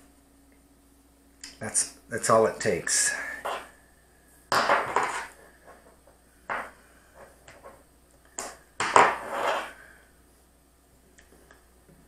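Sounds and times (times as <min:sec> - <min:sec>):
plastic parts knocking and scraping: 0:04.5 - 0:07.8
rustling scrape: 0:09.0 - 0:09.9.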